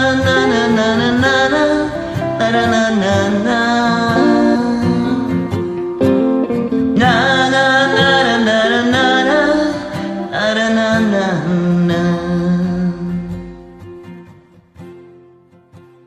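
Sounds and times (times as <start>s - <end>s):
woman singing wordless notes: 0.0s - 5.5s, 7.0s - 13.1s
plucked guitar backing track: 0.0s - 16.0s.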